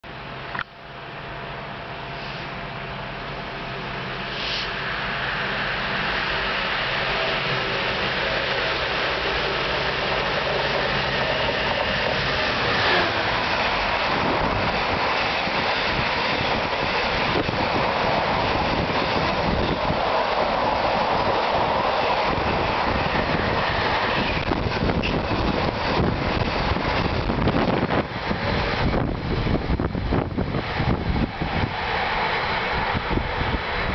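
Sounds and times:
freight train rushing past: 0.1 - 33.9.

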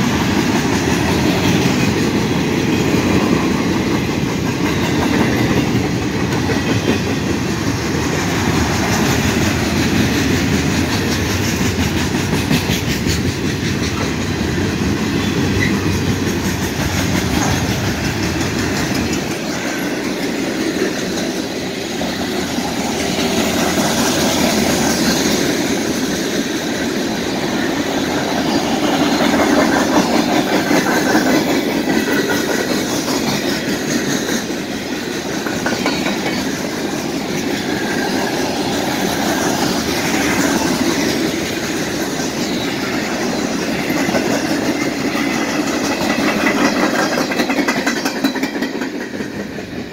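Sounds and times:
freight train rumbling past: 0.0 - 49.9
wheels clacking over rail joints: 0.0 - 49.9.

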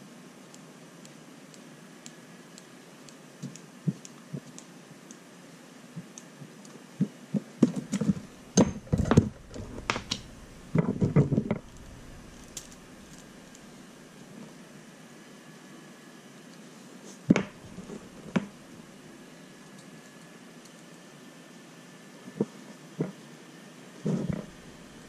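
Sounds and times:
light clicks of small tools: 0.5 - 5.3, 19.6 - 21.1
knocks and clattering of parts: 7.6 - 13.4.

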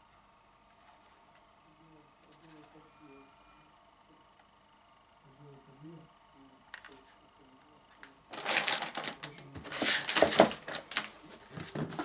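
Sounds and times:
scraping and rustling of packaging: 8.3 - 12.0.

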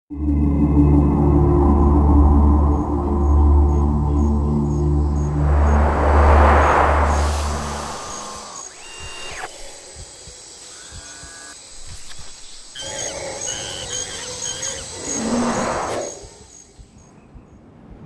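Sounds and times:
deep musical drone: 0.1 - 9.9
whoosh: 3.0 - 10.0
birds chirping and warbling: 7.1 - 17.6.

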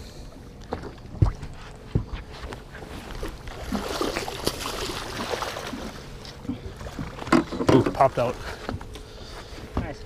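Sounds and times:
water splashing from thrashing fish: 3.2 - 8.4.

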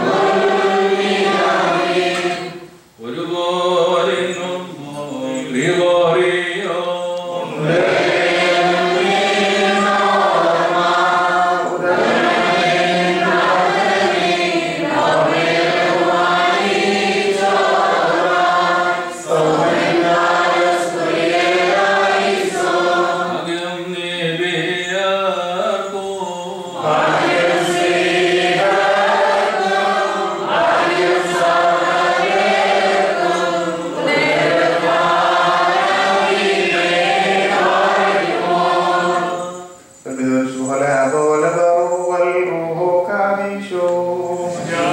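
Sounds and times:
men chanting a hymn: 0.0 - 44.9.

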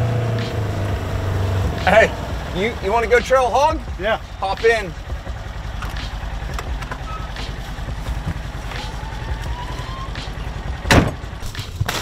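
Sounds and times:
utility vehicle engine idling: 0.0 - 12.0
cab door knocks and clicks: 5.7 - 8.6, 10.8 - 11.4.

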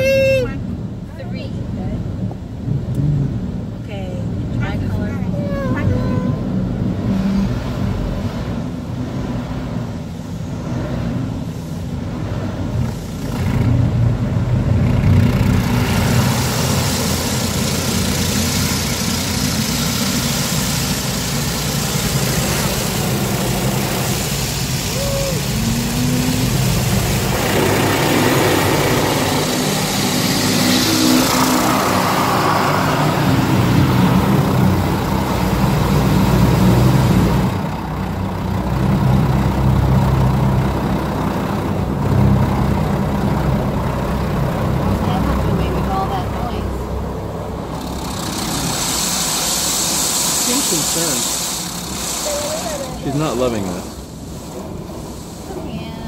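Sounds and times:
car wash low rumble: 0.0 - 56.0
water spray drumming on car: 15.2 - 38.0, 47.6 - 56.0.

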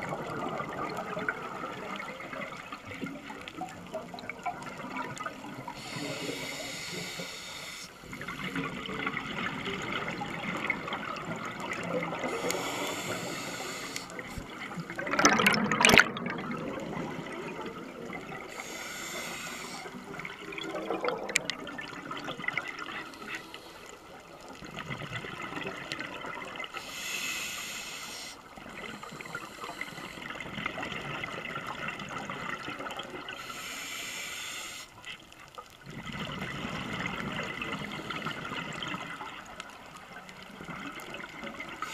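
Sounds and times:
regulator inhalation hiss: 5.7 - 8.2, 12.2 - 14.6, 18.5 - 20.2, 23.0 - 24.2, 26.8 - 30.5, 33.3 - 35.1
bubbling exhalation: 14.8 - 18.6
loud burst of bubbles: 14.9 - 17.5.

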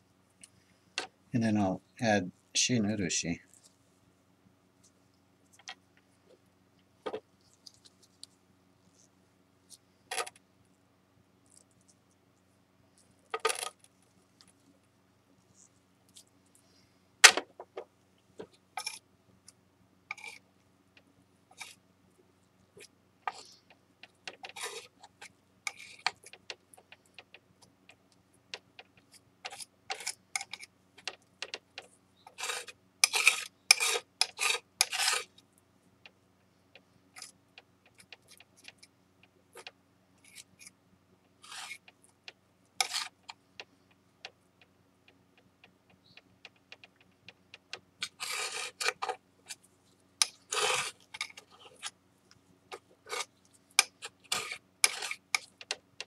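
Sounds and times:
metal spatula scraping: 24.4 - 26.3, 29.5 - 30.7, 32.3 - 35.4, 41.4 - 41.9, 42.8 - 43.2, 48.0 - 49.6, 50.2 - 52.0, 52.7 - 55.6.

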